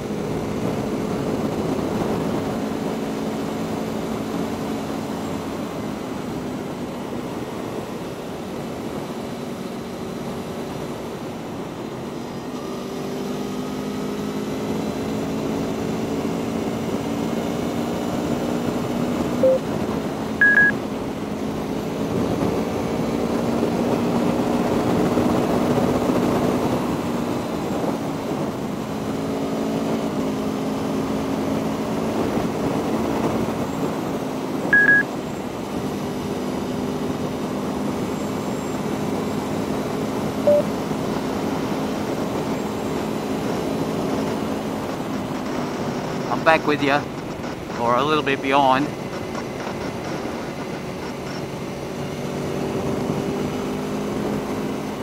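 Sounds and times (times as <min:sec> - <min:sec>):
wind and road noise: 0:00.0 - 0:55.0
short high electronic beeps: 0:19.4 - 0:19.7, 0:20.4 - 0:20.8, 0:34.8 - 0:35.1, 0:40.5 - 0:40.7.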